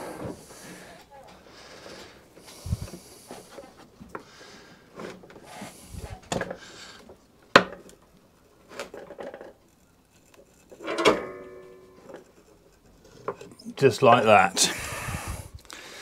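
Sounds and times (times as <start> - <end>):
metallic clang: 10.8 - 12.2.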